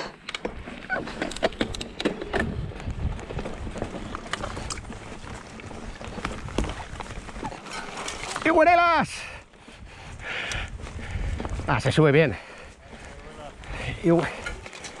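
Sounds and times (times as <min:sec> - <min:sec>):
bike knocking over stones: 0:00.4 - 0:08.6
wind on microphone: 0:01.7 - 0:07.6, 0:09.7 - 0:12.0.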